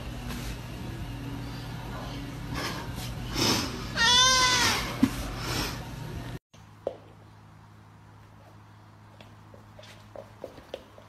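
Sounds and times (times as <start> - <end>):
cat meowing: 4.0 - 4.8.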